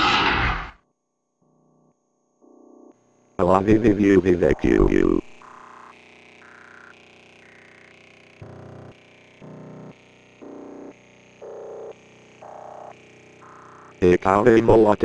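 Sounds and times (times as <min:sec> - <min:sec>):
faint electronic buzz: 0:00.8 - 0:15.0
synthesizer beeping notes: 0:04.0 - 0:05.9.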